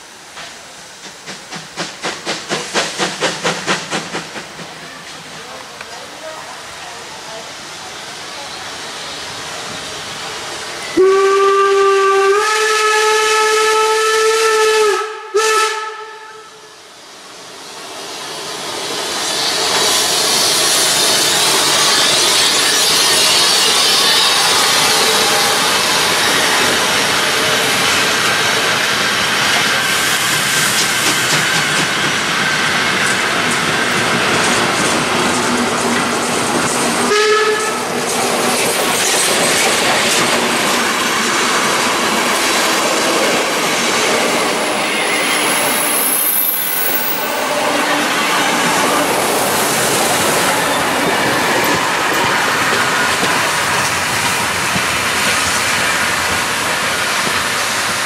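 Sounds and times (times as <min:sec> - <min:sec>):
steam engine hissing: 0:00.0 - 0:15.9, 0:16.5 - 0:58.0
train rushing and rattling: 0:00.0 - 0:58.0
steam locomotive whistle: 0:10.8 - 0:16.8, 0:20.8 - 0:27.7, 0:37.0 - 0:38.0, 0:44.5 - 0:49.2.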